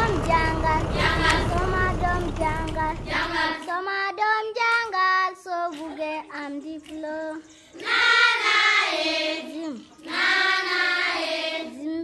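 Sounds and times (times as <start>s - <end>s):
children singing: 0.0s - 3.7s, 7.8s - 9.5s, 10.1s - 12.0s.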